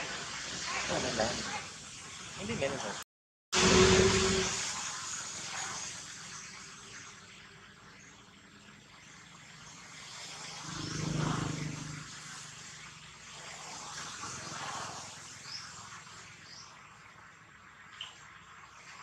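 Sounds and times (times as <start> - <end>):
steady high hiss: 0.0 - 3.0, 3.6 - 8.8
vehicle engine passing: 9.5 - 13.6.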